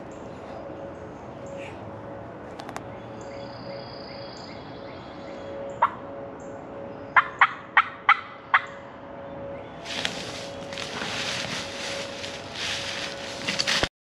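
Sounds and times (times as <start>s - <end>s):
turkey calling: 7.2s - 8.8s.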